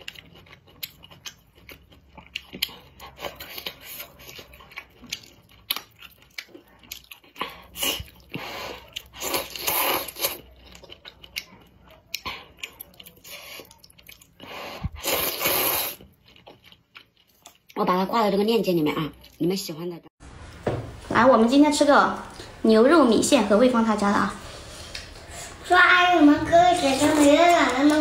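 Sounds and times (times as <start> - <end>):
wet chewing and lip-smacking: 0.0 - 17.8
slurping noodles: 7.4 - 10.5, 14.4 - 16.1.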